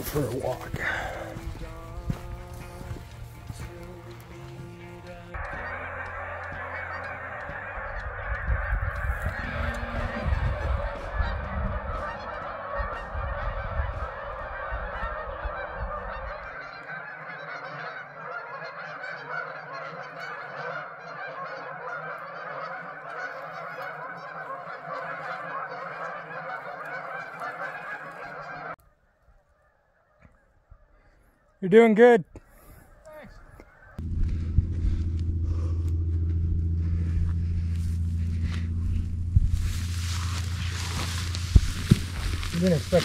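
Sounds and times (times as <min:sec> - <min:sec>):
geese honking: 0:00.0 - 0:43.0
low rumble: 0:00.6 - 0:16.5, 0:34.0 - 0:43.0.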